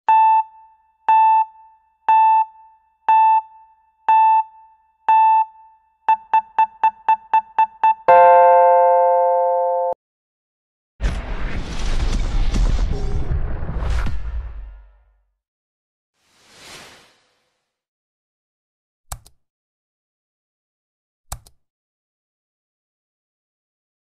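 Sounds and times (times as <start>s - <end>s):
synthesized countdown beeps: 0.1s - 10.0s
long low chord tone: 8.1s - 10.0s.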